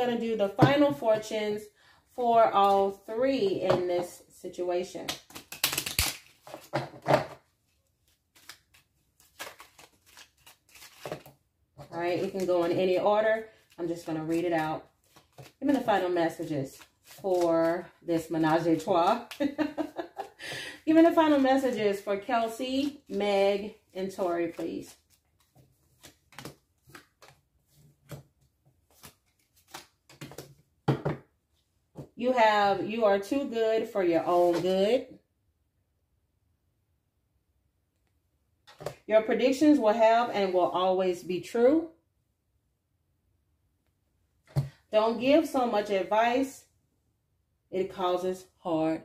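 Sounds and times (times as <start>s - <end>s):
cards being shuffled by hand: 8.0s - 12.8s, 13.6s - 19.6s, 22.8s - 30.6s, 34.4s - 34.7s.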